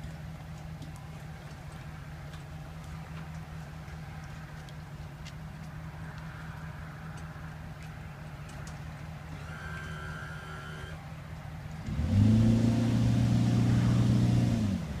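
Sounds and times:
engine idling hum: 0.0 - 15.0
loud motor running: 9.3 - 11.0.

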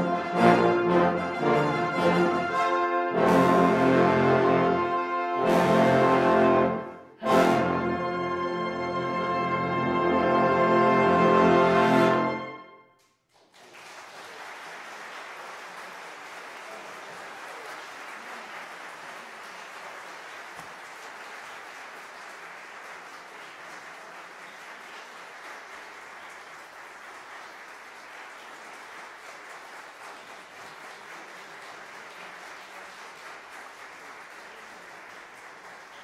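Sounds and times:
audience applauding: 13.3 - 36.0.

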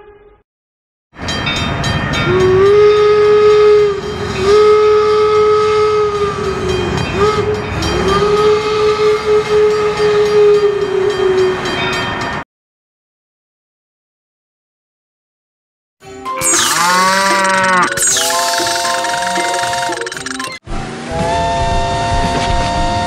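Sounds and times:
steam whistle blasts: 2.4 - 6.4, 7.1 - 7.6, 8.4 - 10.8.

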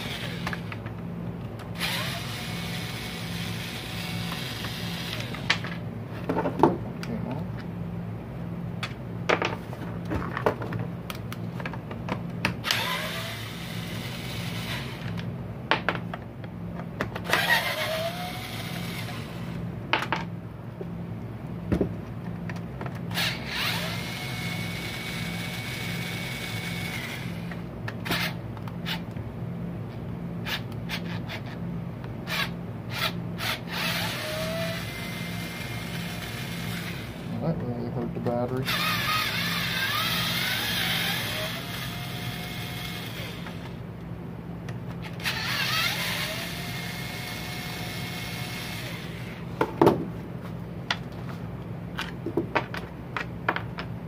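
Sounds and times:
cordless driver whining: 0.0 - 0.8, 1.6 - 5.8, 12.6 - 15.3, 17.2 - 19.6, 23.1 - 29.2, 32.3 - 37.3, 38.6 - 43.8, 45.0 - 49.4
steady low hum: 0.0 - 54.0.

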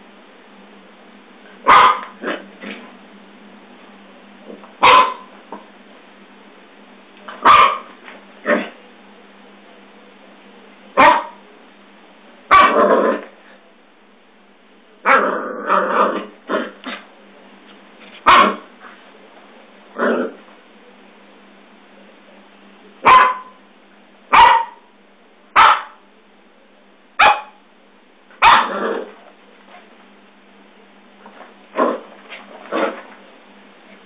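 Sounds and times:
puppy barking in short yaps: 1.7 - 2.1, 4.8 - 5.3, 7.4 - 7.9, 11.0 - 11.4, 18.2 - 18.6, 23.0 - 23.6, 24.3 - 24.8, 25.6 - 26.0, 27.2 - 27.6, 28.4 - 28.7.

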